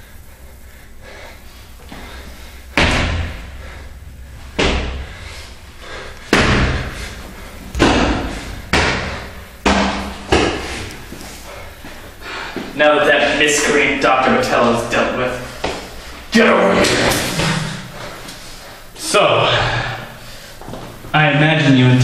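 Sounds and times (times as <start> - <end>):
heavy thuds of blows: 1.8 - 12.7.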